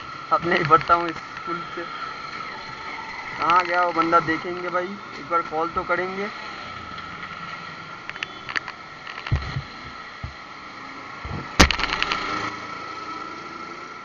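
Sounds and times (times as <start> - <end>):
camera handling knocks and rubs: 8.1 - 10.4.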